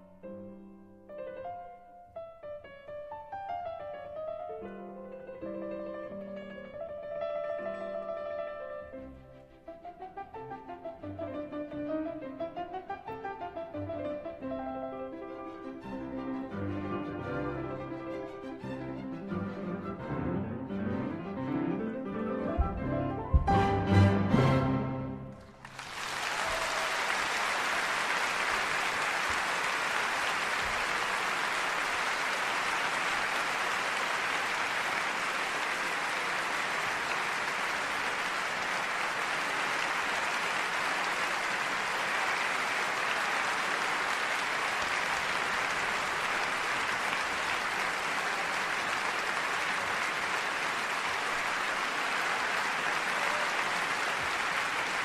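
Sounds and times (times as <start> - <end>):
applause: 25.3 - 55.0.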